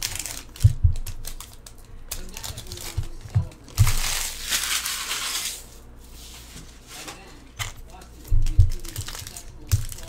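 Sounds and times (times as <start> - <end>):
foil wrapper crinkling: 0.0 - 5.8, 8.3 - 10.0.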